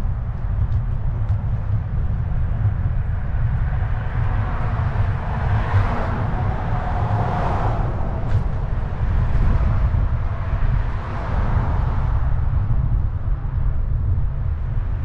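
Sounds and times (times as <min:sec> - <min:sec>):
electric scooter rumble: 0:00.0 - 0:15.0
car passing close by: 0:04.3 - 0:12.2.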